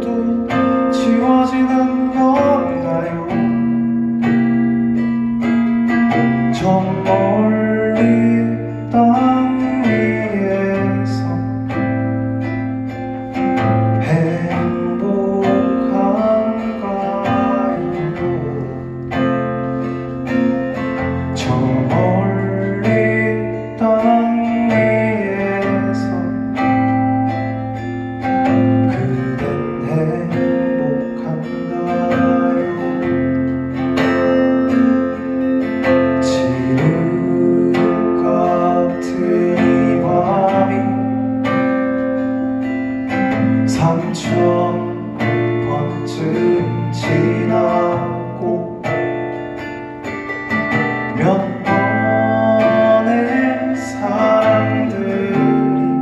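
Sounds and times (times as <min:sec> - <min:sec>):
acoustic guitar strumming: 0:00.0 - 0:56.0
men singing: 0:14.0 - 0:18.8, 0:36.2 - 0:41.0, 0:43.7 - 0:48.7, 0:51.2 - 0:56.0.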